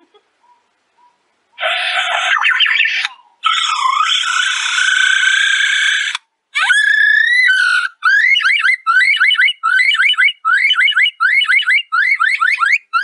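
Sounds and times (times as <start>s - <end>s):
bird mimicking an electronic alarm: 0.4s - 6.2s, 7.2s - 13.0s.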